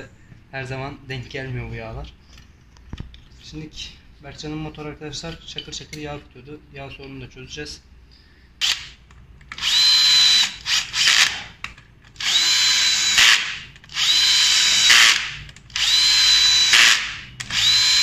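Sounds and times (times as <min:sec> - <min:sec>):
cordless drill whining: 0:09.6 - 0:11.5, 0:12.2 - 0:18.0.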